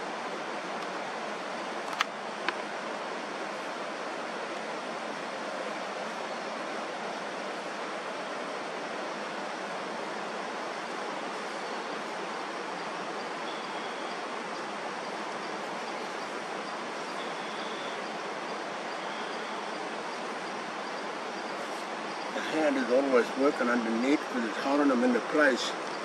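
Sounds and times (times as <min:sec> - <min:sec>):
water rushing: 0:00.0 - 0:26.0
faint high whistle: 0:13.4 - 0:14.2, 0:17.2 - 0:18.0, 0:19.0 - 0:19.7.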